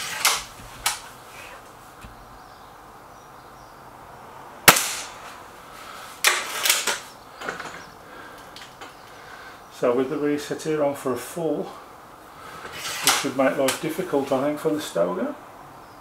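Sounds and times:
air rifle shot: 0:04.7 - 0:05.2.

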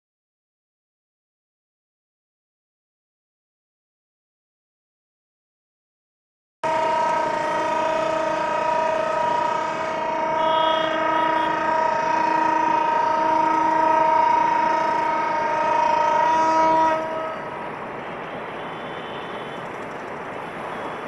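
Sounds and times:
locomotive air horn blast: 0:06.6 - 0:19.8.

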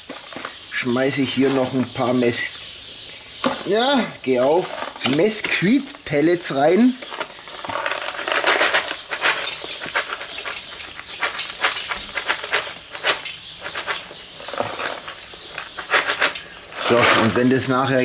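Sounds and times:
wood pellets rattling into metal box: 0:07.0 - 0:18.0.

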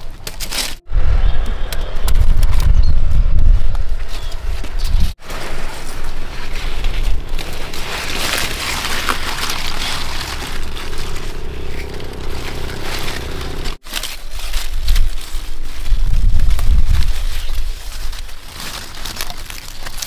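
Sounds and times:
rustling and crackling plants: 0:00.0 - 0:00.9, 0:03.4 - 0:20.0
wind rumble on microphone: 0:00.8 - 0:18.5.

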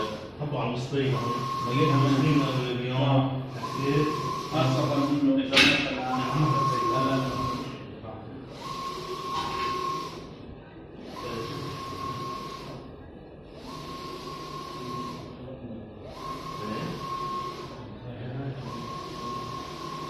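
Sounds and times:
printer carriage whine and rush: 0:00.0 - 0:20.0.

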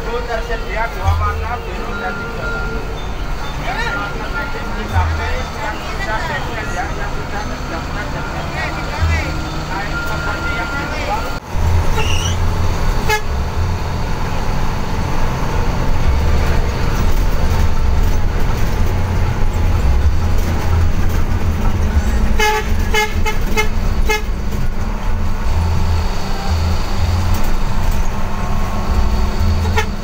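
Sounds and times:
bus engine drone: 0:00.0 - 0:30.0
bus horn toots: 0:01.2 - 0:13.8, 0:22.0 - 0:24.7, 0:25.5 - 0:30.0.

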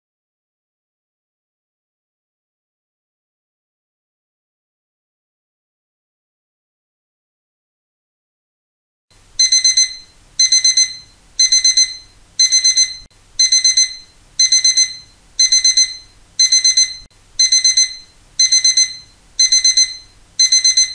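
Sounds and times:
alarm clock beeping: 0:09.4 - 0:20.9.

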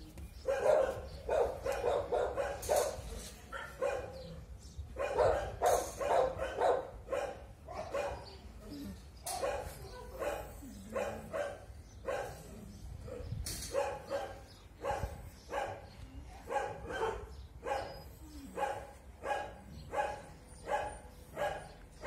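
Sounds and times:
dog barking: 0:00.5 - 0:04.2, 0:05.0 - 0:08.4, 0:09.3 - 0:12.4, 0:13.0 - 0:15.8, 0:16.4 - 0:21.8.

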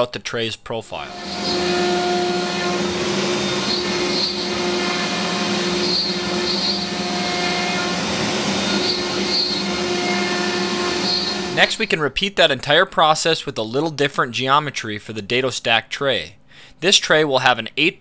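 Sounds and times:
router bit cutting wood: 0:01.1 - 0:11.8
router spindle hum and whine: 0:01.1 - 0:11.8.

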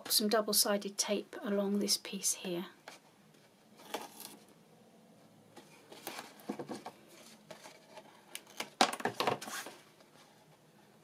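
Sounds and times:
paper rustling and scraping: 0:03.8 - 0:04.5, 0:05.6 - 0:10.6.

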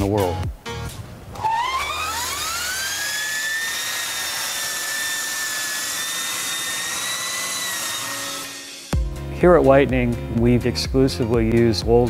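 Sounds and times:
electric motorcycle motor whine: 0:01.4 - 0:09.0.

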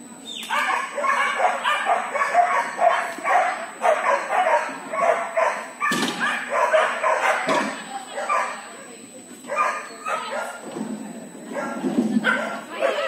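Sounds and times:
dog barking: 0:00.5 - 0:08.6, 0:09.5 - 0:10.6, 0:11.5 - 0:13.0
thump: 0:05.9 - 0:06.2.

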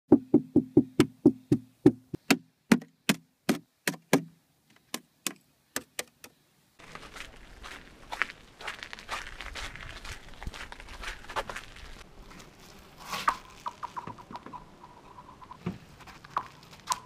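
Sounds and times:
steady outdoor hiss: 0:00.1 - 0:17.0.

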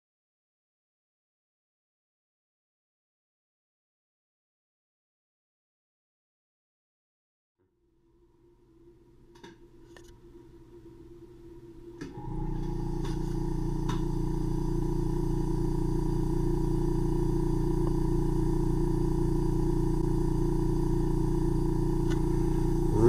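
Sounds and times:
suction pump humming: 0:11.9 - 0:23.0.

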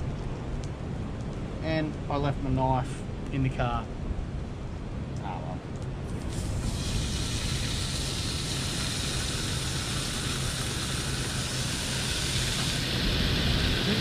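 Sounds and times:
low steady rumble: 0:00.0 - 0:14.0
bacon sizzling in frying pan: 0:06.2 - 0:14.0.

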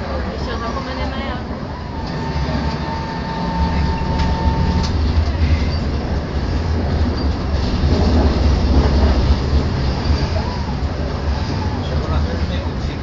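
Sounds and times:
tram wheels rumbling on rails: 0:00.0 - 0:13.0
thin steady whine: 0:01.6 - 0:05.6.

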